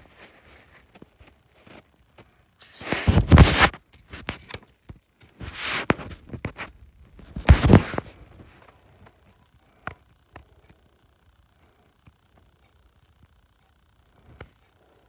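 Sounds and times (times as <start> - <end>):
paper booklet rustling and scraping: 2.6 - 4.6, 5.3 - 8.6.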